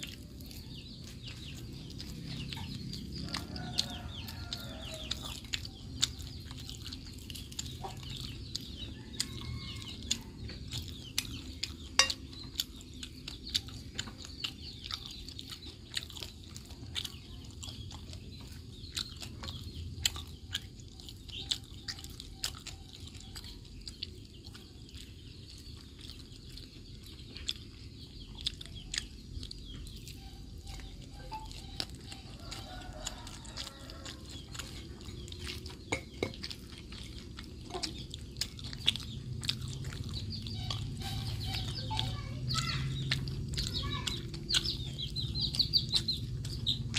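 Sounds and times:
chickens clucking: 0:00.0 - 0:46.9
clicks and taps on a plate: 0:11.9 - 0:12.4, 0:35.9 - 0:36.5.

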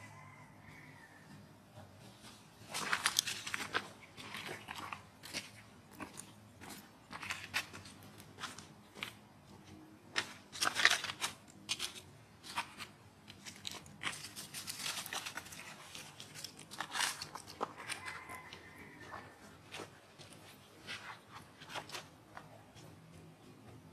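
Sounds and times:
dry leaves crackling and rustling: 0:02.7 - 0:05.5, 0:13.4 - 0:18.5.

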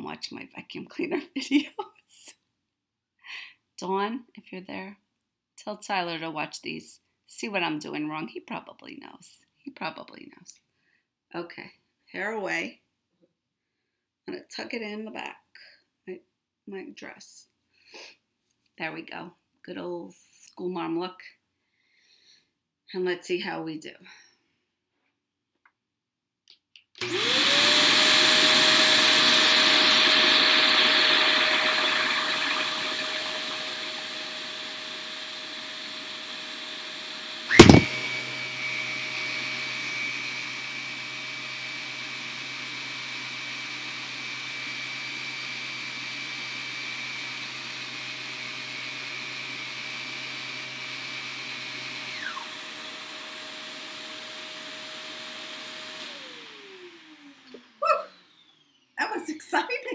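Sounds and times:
vacuum cleaner motor whine: 0:27.0 - 0:59.1.

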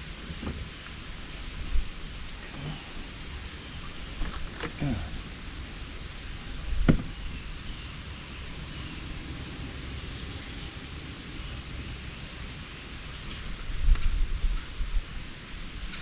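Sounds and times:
wind rumble on microphone: 0:00.0 - 0:16.0
sharp knock: 0:06.9 - 0:07.2.

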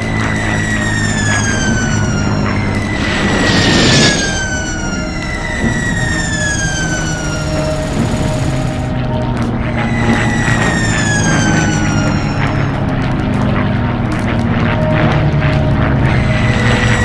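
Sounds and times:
aircraft engines droning: 0:00.0 - 0:17.0
falling bomb whistles: 0:00.4 - 0:08.9, 0:09.8 - 0:12.7
burst of rushing noise: 0:01.4 - 0:08.9.

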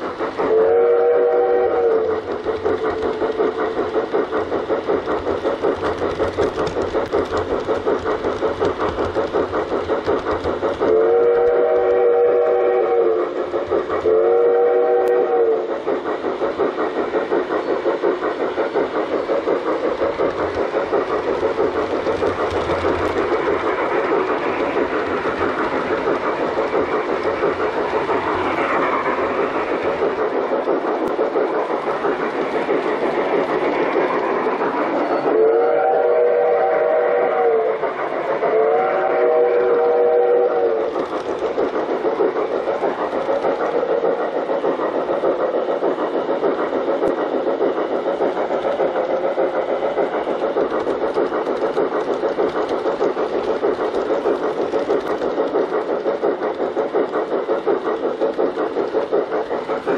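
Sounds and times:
model train wheels rattling: 0:00.0 - 0:35.3, 0:39.3 - 0:59.9
steam whistle blasts: 0:00.5 - 0:02.2, 0:10.9 - 0:13.4, 0:14.0 - 0:15.7, 0:35.3 - 0:37.8, 0:38.4 - 0:40.8.

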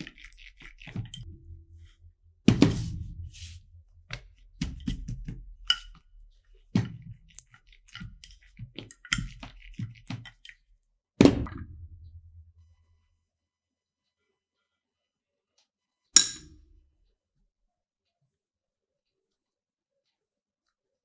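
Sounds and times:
heavy thump: 0:01.2 - 0:05.6.

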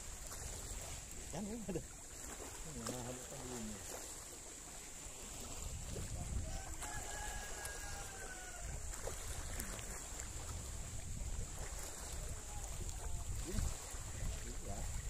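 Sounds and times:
wind buffeting microphone: 0:05.2 - 0:15.0.

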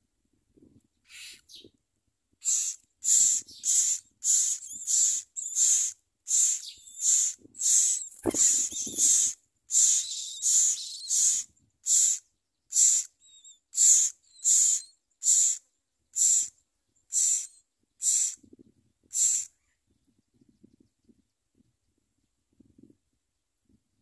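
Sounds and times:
nestlings begging calls: 0:01.1 - 0:01.6, 0:02.4 - 0:15.6, 0:16.2 - 0:16.5, 0:17.1 - 0:18.4, 0:19.1 - 0:19.6.

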